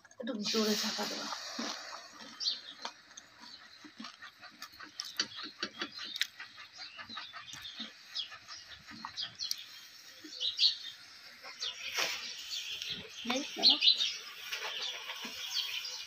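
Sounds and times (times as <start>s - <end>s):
batter sizzling in hot oil: 0.3s - 2.6s.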